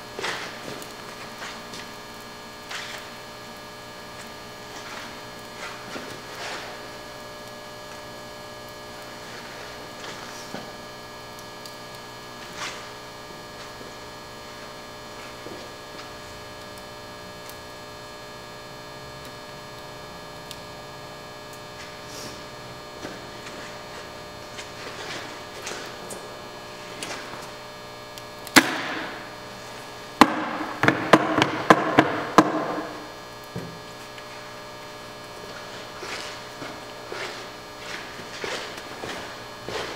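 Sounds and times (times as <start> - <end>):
electrical hum: 0.0 - 39.9.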